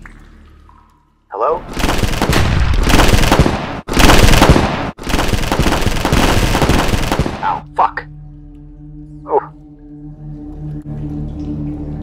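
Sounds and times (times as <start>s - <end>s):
low background music tones: 0.0s - 2.8s, 4.6s - 12.0s
automatic gunfire: 1.7s - 7.6s.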